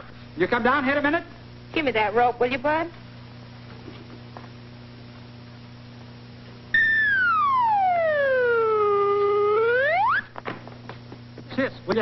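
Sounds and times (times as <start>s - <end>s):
faint soundtrack hum: 0.0s - 12.0s
slide whistle gliding: 6.8s - 10.3s.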